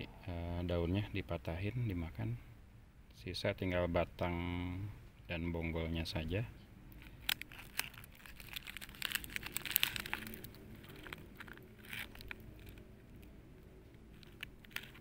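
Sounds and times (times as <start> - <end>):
plastic bags crinkling: 7.1 - 12.9, 14.1 - 15.0.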